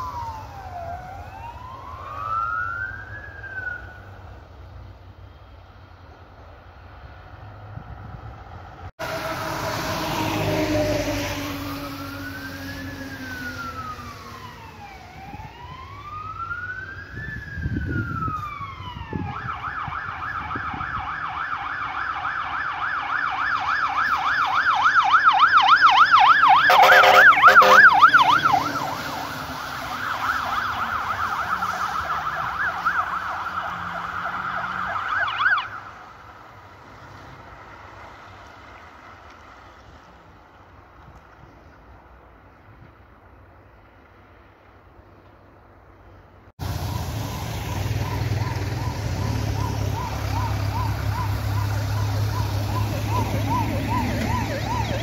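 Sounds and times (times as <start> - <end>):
fire engine siren wailing: 0.0 - 6.1, 6.7 - 40.7, 46.6 - 55.0
loud horn blast: 26.7 - 28.1.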